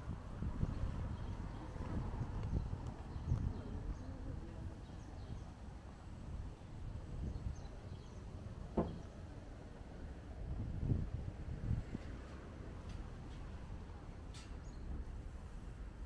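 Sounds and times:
wind on microphone: 0.0 - 9.1, 10.3 - 12.5
distant traffic: 0.0 - 16.0.

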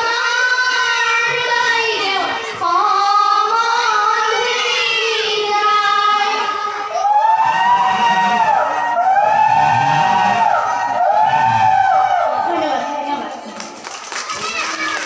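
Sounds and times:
girls singing: 0.0 - 7.6.

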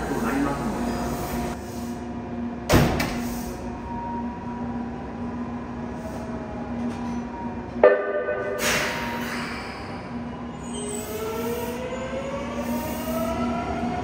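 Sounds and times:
subway train hum: 0.0 - 14.0.

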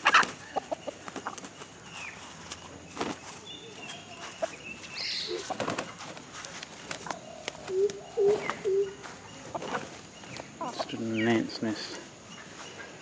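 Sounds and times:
chickens clucking: 0.0 - 13.0
chicken wings flapping: 2.9 - 3.4, 5.3 - 8.6.

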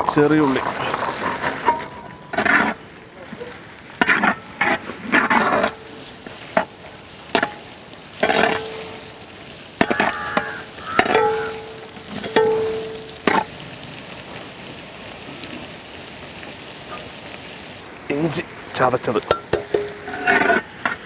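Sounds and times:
shallots sizzling in oil: 0.0 - 21.0
metal pot ringing: 7.4 - 9.2, 9.8 - 13.4.

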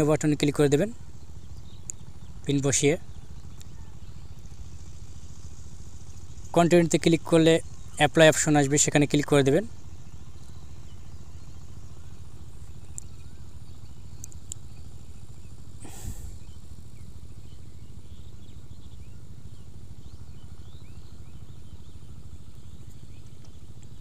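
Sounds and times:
low background hum: 0.0 - 24.0
faint clicks: 12.6 - 13.2, 14.2 - 14.8.

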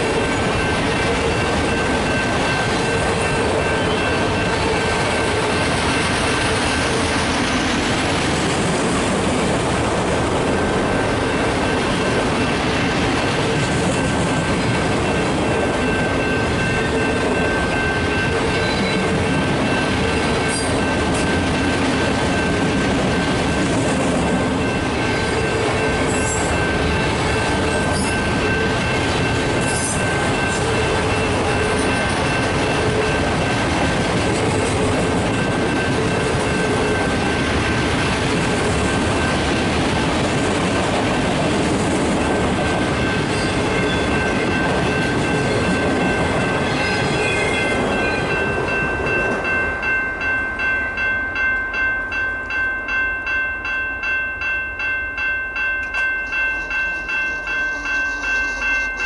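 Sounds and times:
high ringing tone: 0.0 - 7.0, 15.0 - 33.6, 42.2 - 59.0
train wheels rumbling on rail: 0.0 - 53.0.

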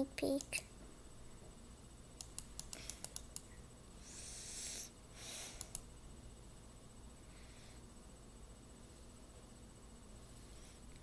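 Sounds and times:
breathy hiss: 4.0 - 5.8, 7.2 - 8.0.

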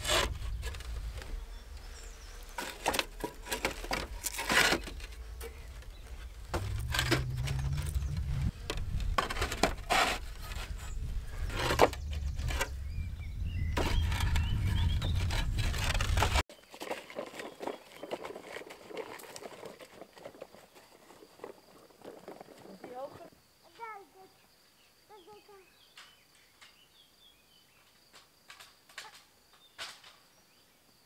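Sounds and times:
low rumble: 5.0 - 9.2, 10.8 - 16.4.

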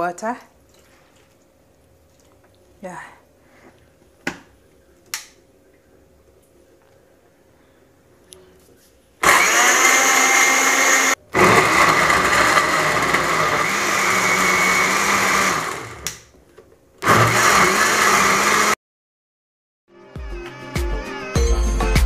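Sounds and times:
blender motor running: 9.2 - 16.1, 17.0 - 18.8.

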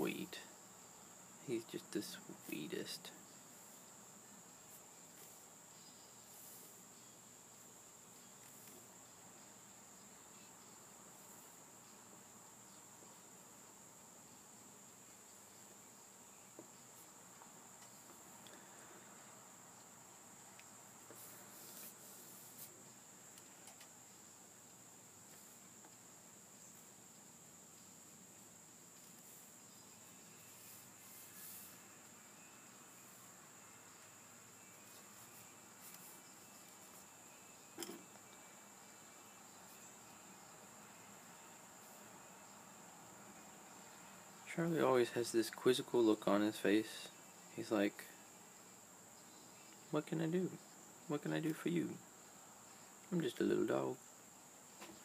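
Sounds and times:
faint high-pitched whine: 0.0 - 55.0
paintbrush scratching on paper: 6.2 - 6.8, 21.1 - 22.8, 30.4 - 31.9.

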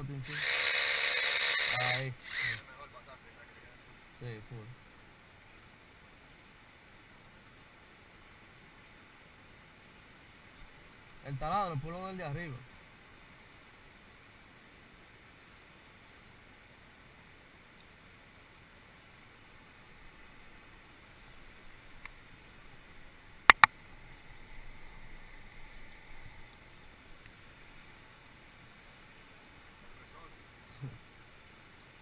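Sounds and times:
low outdoor hiss: 0.0 - 32.0
sharp clicks: 23.5 - 23.7.

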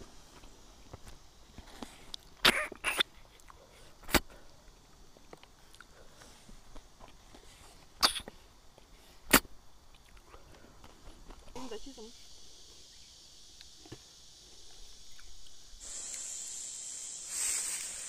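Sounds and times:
person slurping snails: 15.1 - 18.0.

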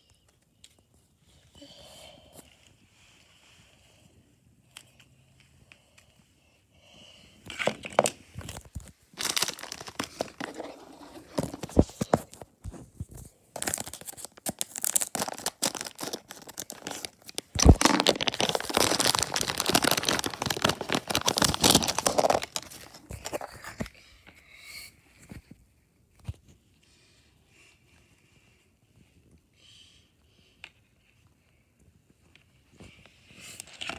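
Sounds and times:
plastic wrapper crinkling: 7.6 - 12.5, 13.6 - 23.9.

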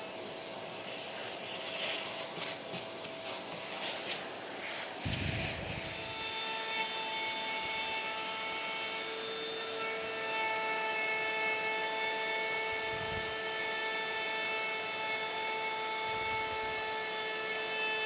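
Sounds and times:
dust extractor hiss: 0.0 - 6.2
router motor whining: 4.4 - 18.0.

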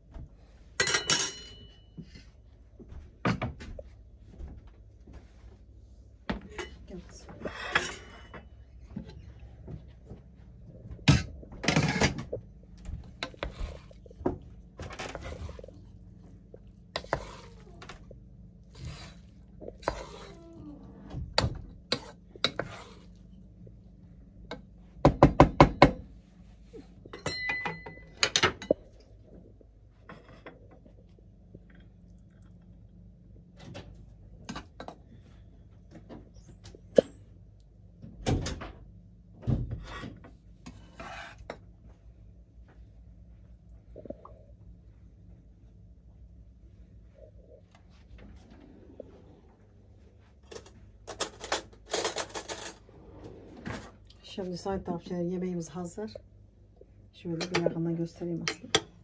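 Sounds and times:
spoons scraping in a pot: 7.4 - 8.3, 16.9 - 20.6, 21.8 - 23.4, 39.9 - 41.6.

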